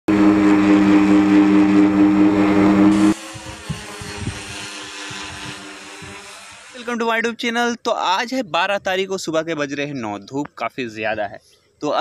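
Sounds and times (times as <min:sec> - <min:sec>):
model plane motor humming: 0:00.1 - 0:06.8.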